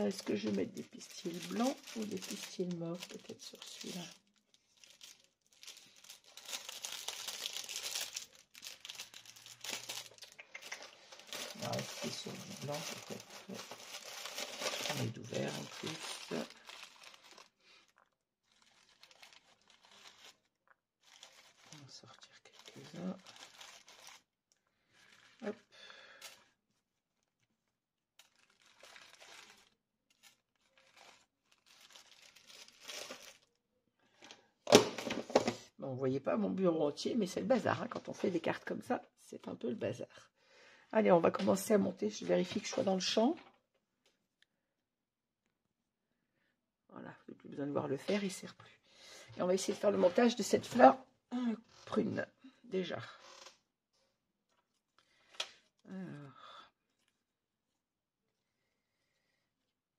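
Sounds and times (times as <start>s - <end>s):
crinkling and rustling: 0.0s - 33.5s.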